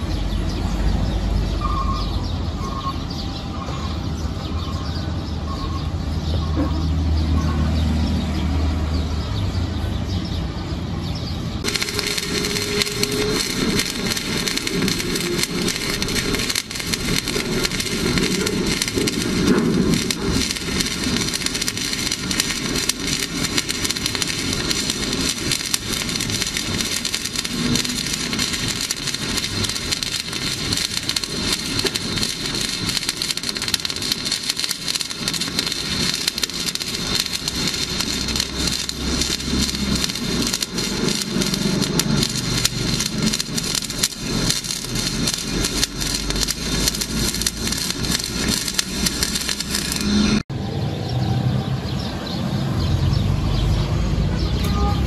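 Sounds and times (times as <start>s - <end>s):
welding arc crackling and sizzling: 11.5s - 50.5s.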